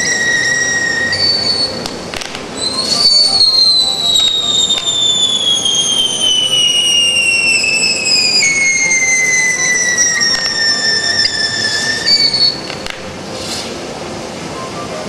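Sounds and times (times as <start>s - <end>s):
firework whistle: 0.0s - 13.8s
sharp cracks: 1.0s - 13.8s
hiss of spraying sparks: 12.5s - 13.8s.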